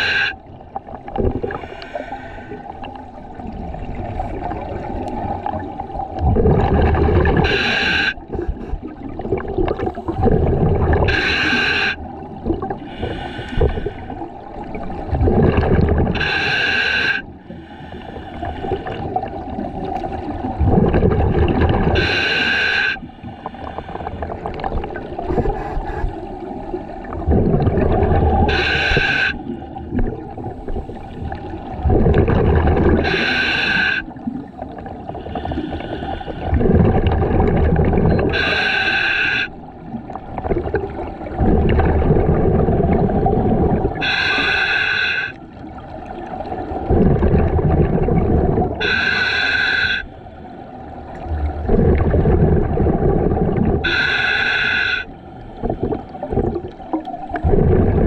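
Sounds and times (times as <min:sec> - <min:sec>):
exhaled bubbles burbling: 0:00.0 - 0:01.8, 0:02.7 - 0:16.4, 0:18.8 - 0:22.2, 0:23.9 - 0:35.6, 0:36.4 - 0:38.6, 0:39.6 - 0:44.2, 0:45.5 - 0:49.1, 0:51.0 - 0:54.1, 0:55.6 - 0:58.0
regulator hiss with whistling tone: 0:48.8 - 0:50.1.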